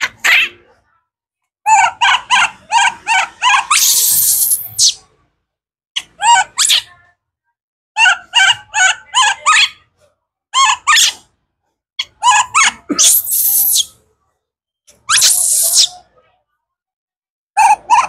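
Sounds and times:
baby monkey screaming: 0:00.0 - 0:00.7, 0:01.7 - 0:05.0, 0:06.0 - 0:06.9, 0:10.6 - 0:11.3, 0:12.0 - 0:14.0, 0:14.9 - 0:16.1, 0:17.6 - 0:18.0.

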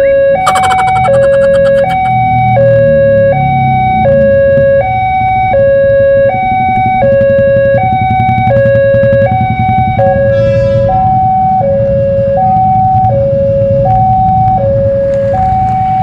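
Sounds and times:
level crossing two-tone alarm: 0:00.0 - 0:02.7, 0:03.3 - 0:10.3.

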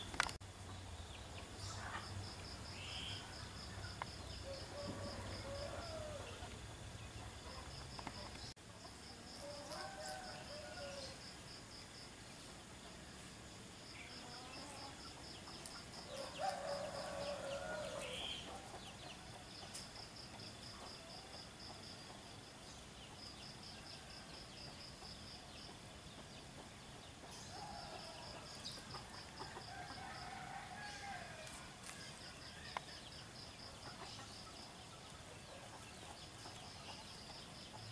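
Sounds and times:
chickens calling: 0:03.8 - 0:11.2.

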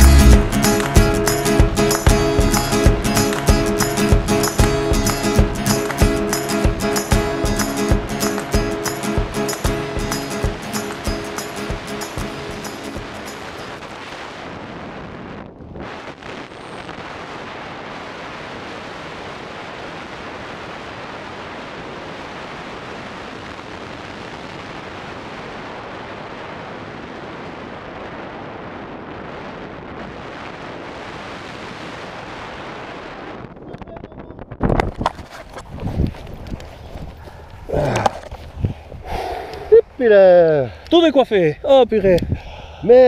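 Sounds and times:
wind rushing over microphone: 0:10.3 - 0:40.0, 0:41.6 - 0:43.0.

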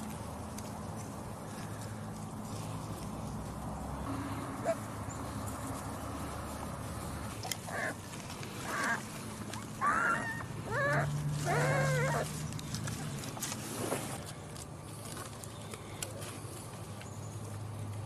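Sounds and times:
puppies yipping and whining: 0:07.4 - 0:08.0, 0:08.6 - 0:12.5.

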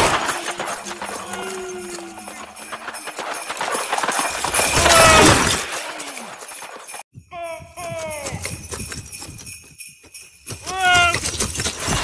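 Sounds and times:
clattering clicks and crashing rush: 0:00.0 - 0:07.0, 0:10.5 - 0:12.0.

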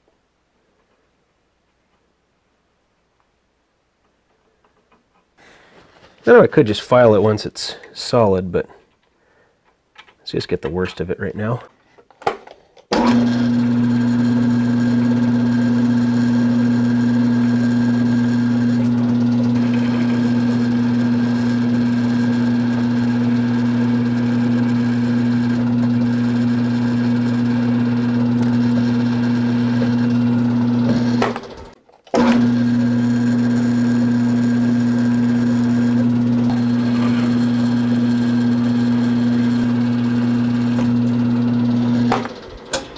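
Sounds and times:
drill press motor hum: 0:12.9 - 0:42.9
drill boring through metal: 0:13.0 - 0:42.5.

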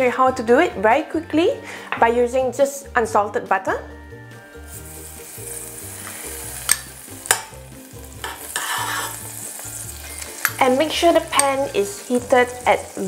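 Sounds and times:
butter sizzling in pan: 0:04.4 - 0:13.0
spoon scraping glass bowl: 0:08.2 - 0:09.3.

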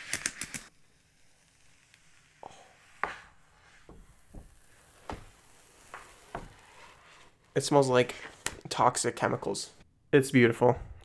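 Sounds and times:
protective wrap peeling crackles: 0:00.0 - 0:08.6.

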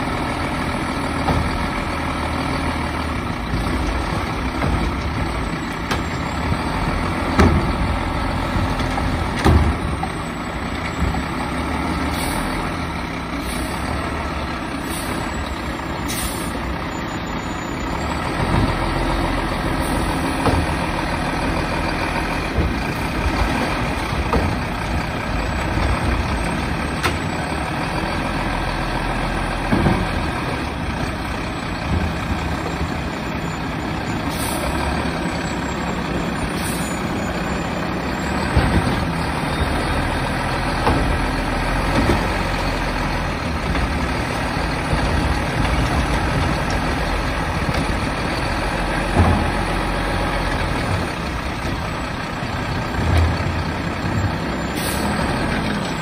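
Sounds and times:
diesel truck engine running: 0:00.0 - 0:56.0
side-loader arm tipping carts: 0:00.0 - 0:56.0.

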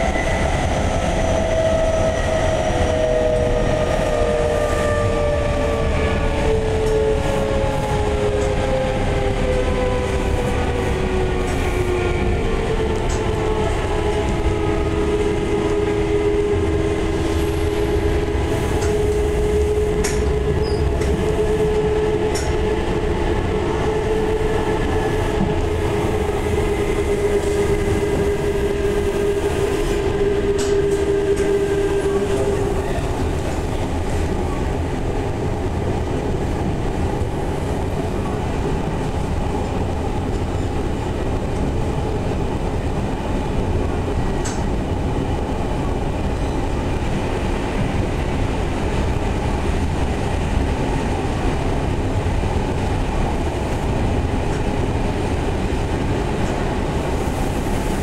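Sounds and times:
wheel and rail rumble: 0:00.0 - 0:58.0.

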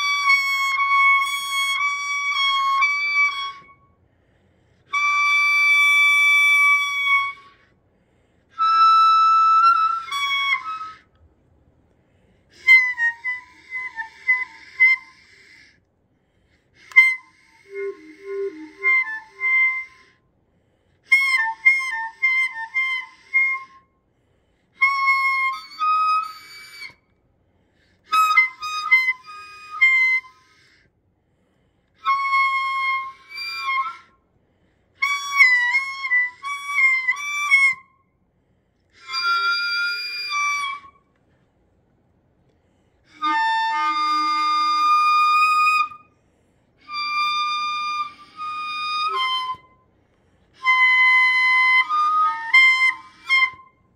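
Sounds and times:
scuba gear pitched tones: 0:17.6 - 0:19.8.

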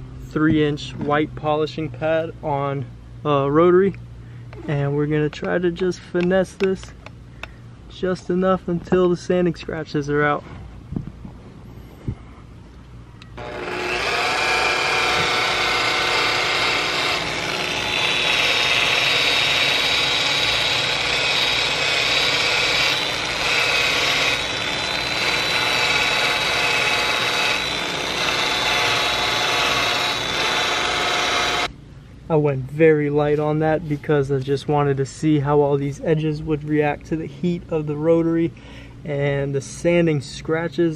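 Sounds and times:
rotary polisher whining: 0:13.4 - 0:31.7.

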